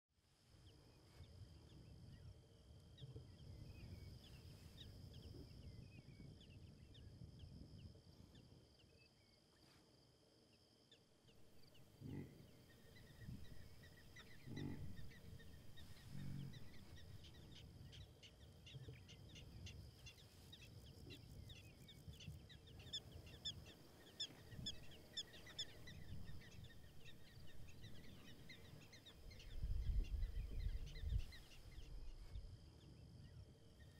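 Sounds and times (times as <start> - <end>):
birds chirping: 11.3 - 33.9
low wind rumble: 11.4 - 33.9
short low animal calls: 14.2 - 16.9.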